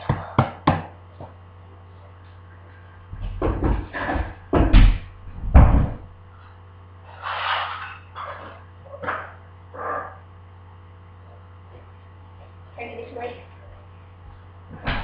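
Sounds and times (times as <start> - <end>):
loud thumps and knocks: 3.1 - 6.2, 14.7 - 15.0.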